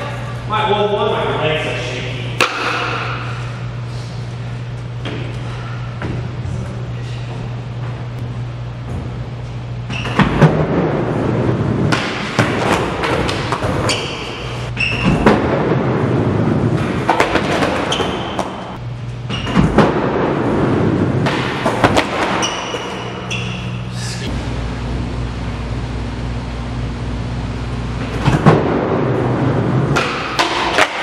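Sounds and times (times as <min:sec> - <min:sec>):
short squeaks: 0:22.4 - 0:24.1.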